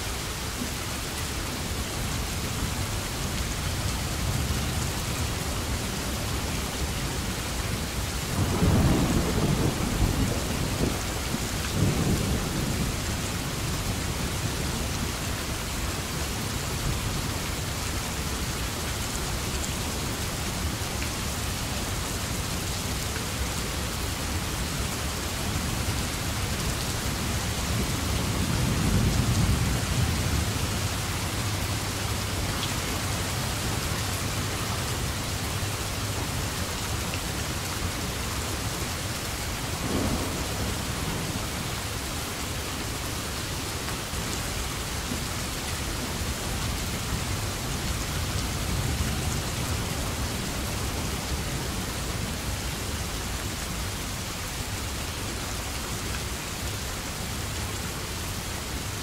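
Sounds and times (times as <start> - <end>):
steady rainfall: 0.0 - 59.0
thunder rumbling: 8.4 - 13.5, 39.6 - 42.6.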